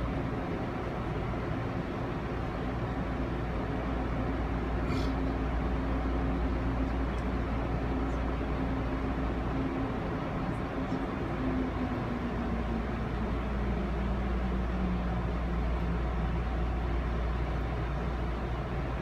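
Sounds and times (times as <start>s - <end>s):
constant hum: 0.0s - 19.0s
train interior rumble: 0.0s - 19.0s.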